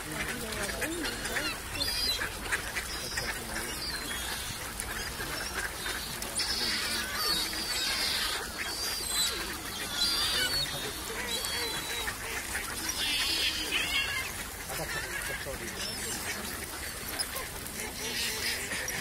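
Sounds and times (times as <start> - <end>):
waterbird flock calling: 0.0 - 19.0.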